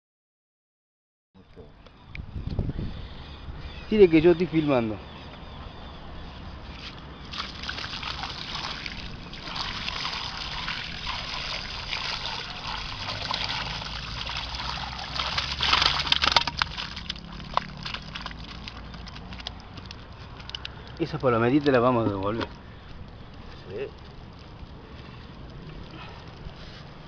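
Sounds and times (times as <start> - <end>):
water pouring and splashing: 7.3 - 20.6.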